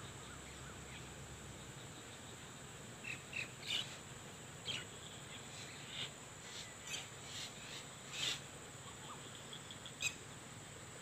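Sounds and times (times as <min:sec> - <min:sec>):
birds chirping: 0:00.0 - 0:10.6.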